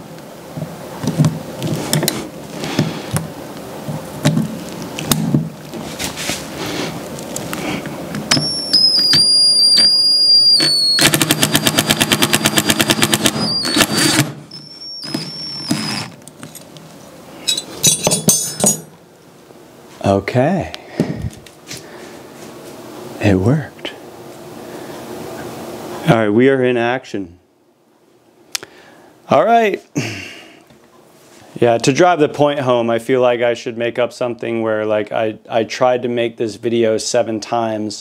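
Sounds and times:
impact driver motor whining: 0:08.2 - 0:16.3
impact mechanism hammering: 0:10.6 - 0:15.9, 0:17.5 - 0:18.9.

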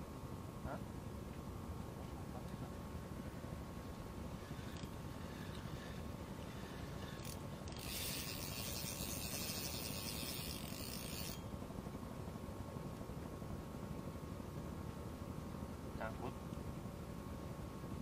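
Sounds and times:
fishing reel whirring: 0:04.3 - 0:11.6.

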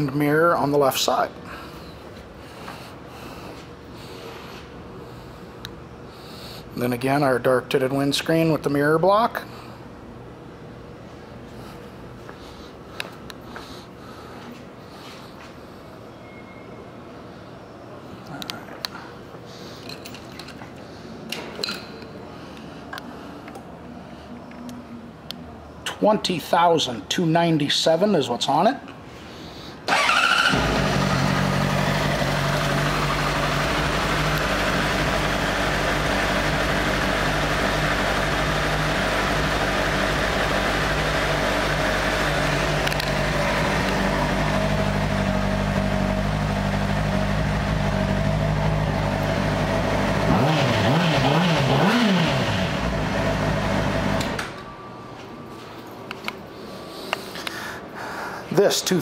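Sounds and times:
motorcycle engine idling: 0:29.9 - 0:54.2
engine throttle blips: 0:29.9 - 0:54.8.

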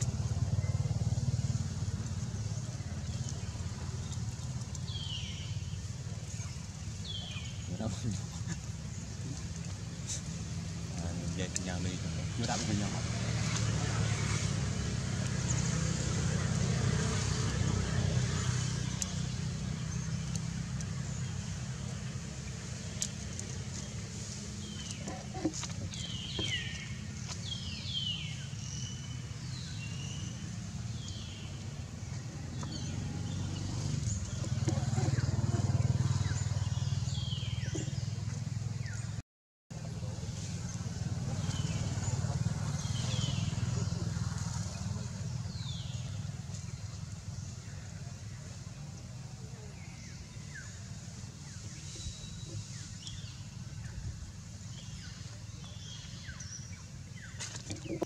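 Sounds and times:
birds chirping: 0:00.0 - 0:39.2, 0:39.8 - 0:58.0.

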